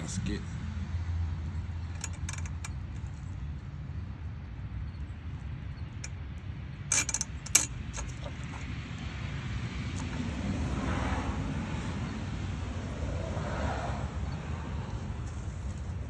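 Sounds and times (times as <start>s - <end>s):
metal parts clicking and tapping: 1.8s - 3.2s, 6.9s - 8.7s.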